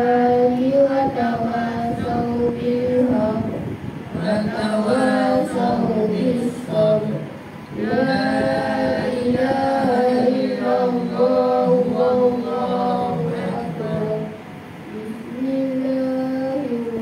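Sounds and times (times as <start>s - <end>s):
group chanting in unison: 4.1s - 14.4s.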